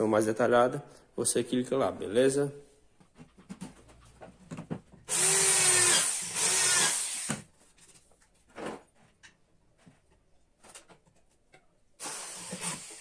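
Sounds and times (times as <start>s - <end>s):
electric drill driving screws: 5.1s - 7.5s, 12.0s - 13.0s.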